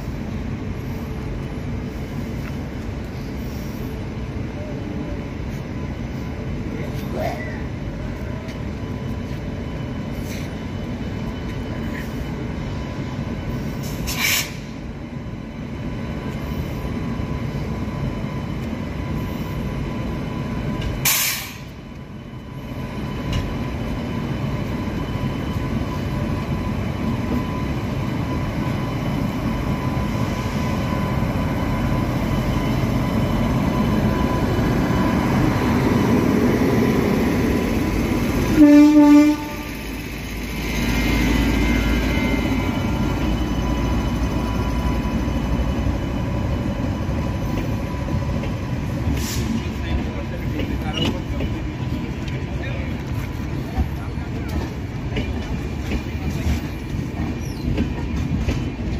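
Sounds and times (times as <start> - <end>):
train rumble: 0.0 - 58.9
short hissing noises: 13.8 - 14.7, 21.0 - 21.8
loud train horn blast: 38.5 - 39.9.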